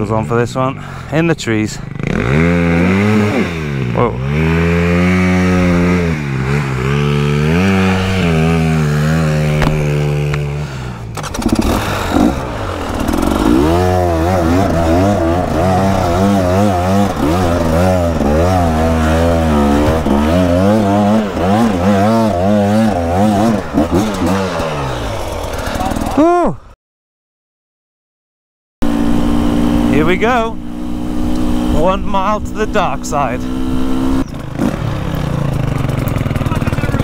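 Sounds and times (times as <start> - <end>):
dirt bike engine revving: 0.3 - 26.3, 28.8 - 37.0.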